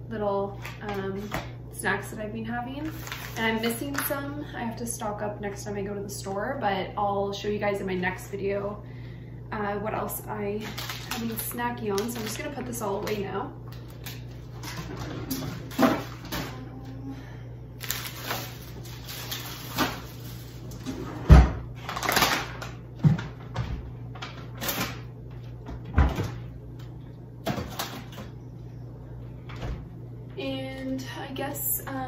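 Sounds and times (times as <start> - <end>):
plastic snack bags rustling: 2.8 - 4.1, 10.5 - 16.5, 17.8 - 20.8, 21.8 - 22.8
cupboard doors opening and shutting: 20.8 - 21.7.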